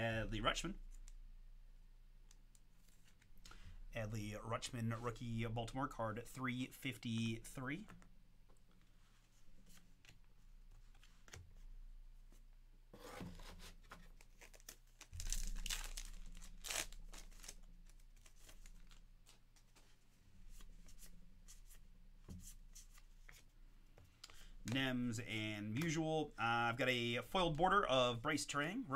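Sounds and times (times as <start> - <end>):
cards being handled: 7.8 - 11.7, 13.1 - 26.0
foil wrapper tearing and crinkling: 14.3 - 19.0.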